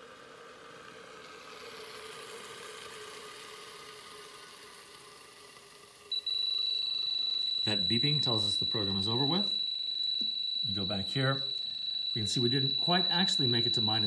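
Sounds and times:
freezer whirring and hissing: 0.0 - 14.0
high-pitched alarm beep: 6.1 - 14.0.

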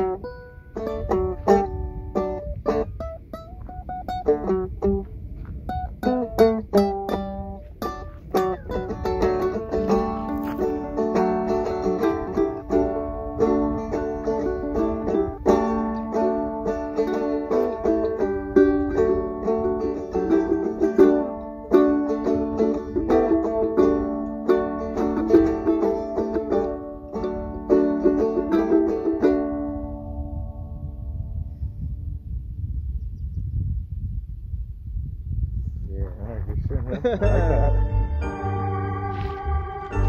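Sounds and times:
ukulele strumming: 0.0 - 30.4, 37.1 - 40.0
plucked string instrument: 0.0 - 30.7, 37.0 - 40.0.

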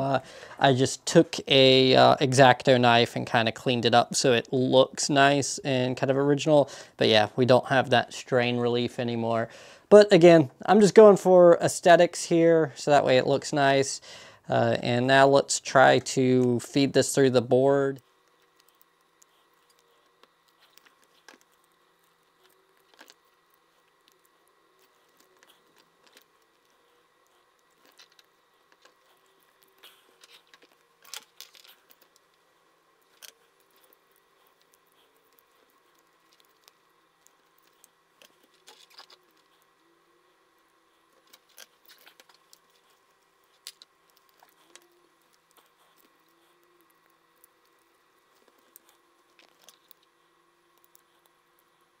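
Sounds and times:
quiet steady hum: 0.0 - 52.0
wire leads clicking and rubbing: 16.4 - 52.0.

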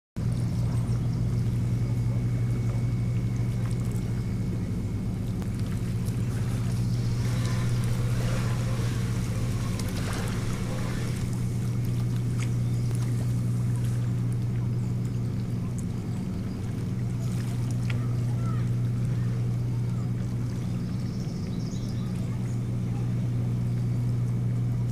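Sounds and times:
boat engine droning: 0.2 - 24.9
rushing hiss: 6.3 - 11.6.

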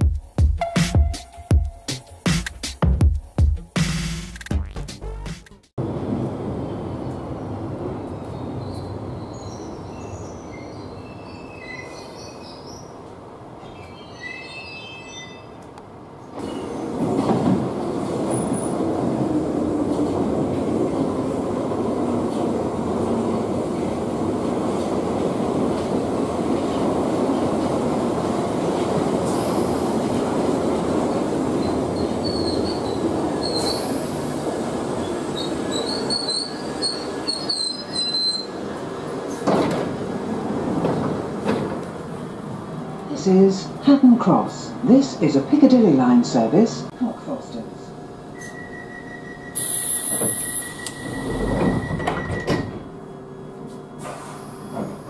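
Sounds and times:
high-pitched brake squeals: 8.6 - 12.4, 13.7 - 15.6, 31.6 - 34.2, 35.4 - 38.5, 48.3 - 53.0
train wheels rumbling on rails: 16.3 - 43.1.

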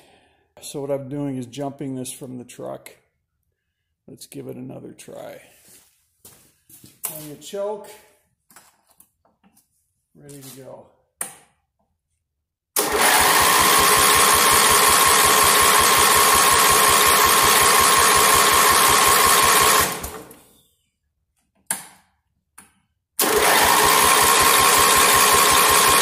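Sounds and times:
electric starter cranking engine: 12.8 - 20.4, 23.2 - 26.0.

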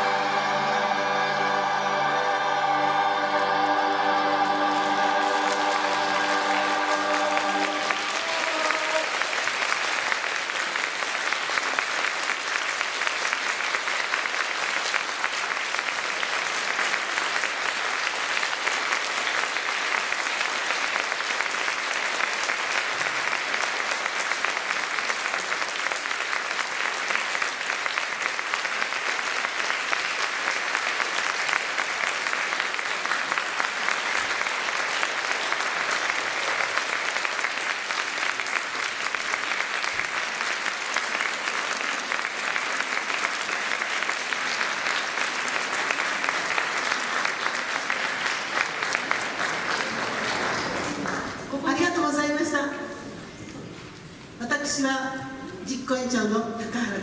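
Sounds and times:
choir singing chord: 0.0 - 9.1
audience applauding: 0.0 - 51.8.

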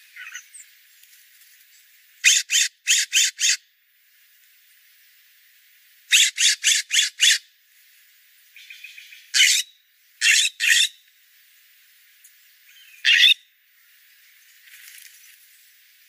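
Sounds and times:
bird giving harsh raspy calls: 2.2 - 3.6, 6.1 - 7.4, 8.7 - 10.9, 13.0 - 13.4.

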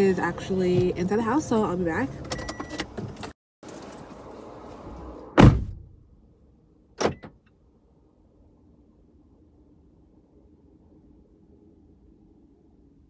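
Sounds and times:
car door slamming: 5.3 - 6.0, 7.0 - 7.4.

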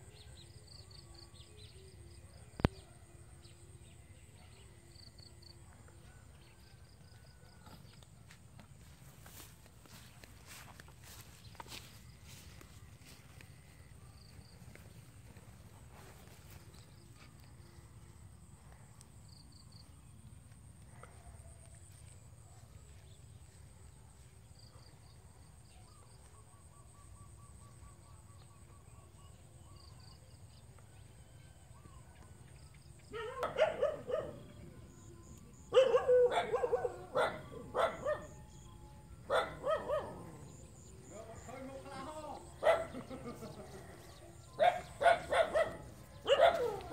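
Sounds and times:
dog barking: 33.1 - 34.6, 35.7 - 38.4, 39.3 - 40.6, 42.6 - 43.2, 44.6 - 46.9.

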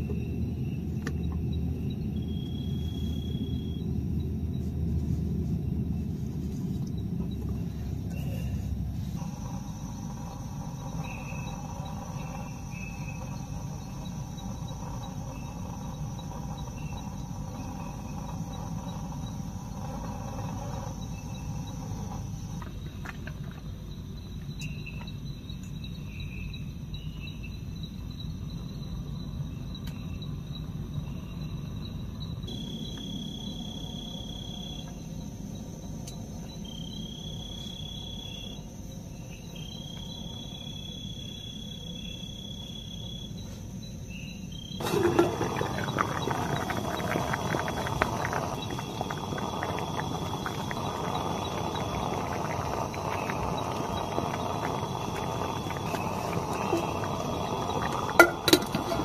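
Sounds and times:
crickets chirping: 0.0 - 59.0
insect whine: 0.0 - 59.0.

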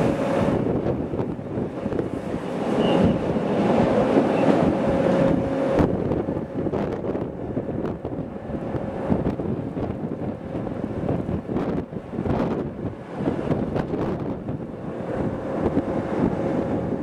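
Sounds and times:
train rumbling: 0.0 - 17.0.

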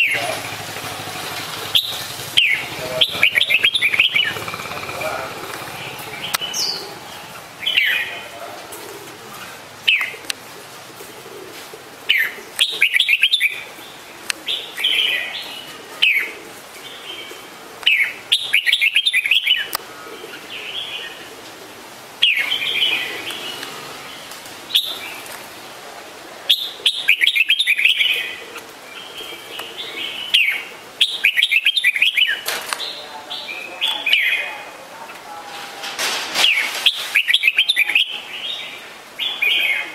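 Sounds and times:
bird singing chirped phrases: 1.6 - 8.5, 12.1 - 21.3, 22.2 - 25.2, 26.5 - 35.2, 36.5 - 39.9.

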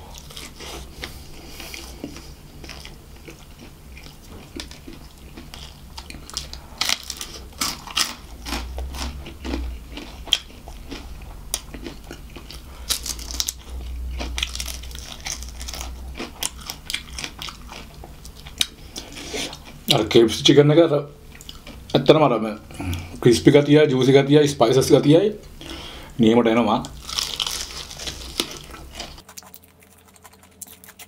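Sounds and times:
crunching fried chicken: 0.0 - 20.0, 26.8 - 31.0
soft chewing: 0.0 - 20.0, 21.3 - 22.1, 26.8 - 31.0.

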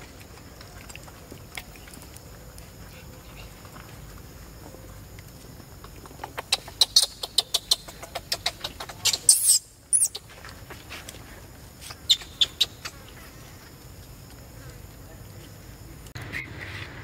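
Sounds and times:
monkey squeaking: 6.2 - 10.3, 11.8 - 13.1.

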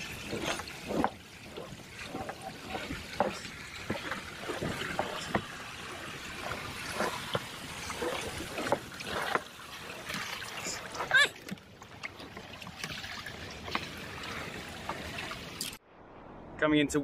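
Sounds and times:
kayak knocking over rollers: 0.0 - 9.5
water trickling: 0.0 - 15.8.

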